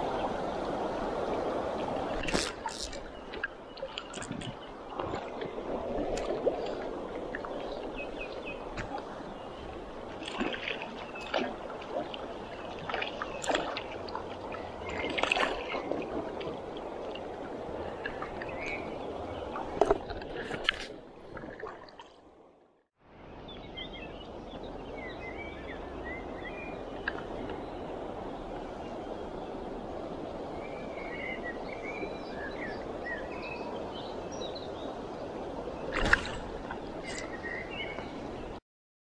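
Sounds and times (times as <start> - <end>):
small water splashes and clicks: 2.1 - 9.1, 10.1 - 18.9, 19.5 - 22.2, 27.0 - 27.6, 35.9 - 38.1.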